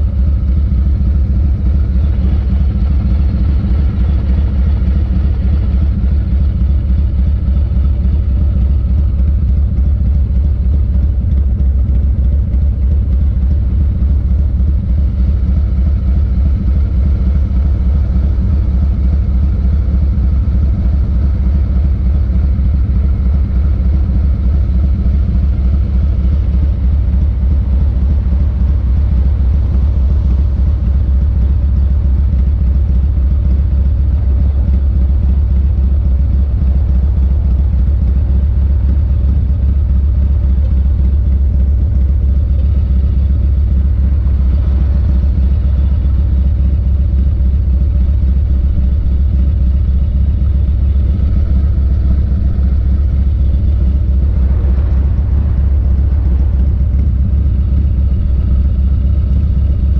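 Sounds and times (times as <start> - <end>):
motorcycle engine idling: 0.0 - 59.9.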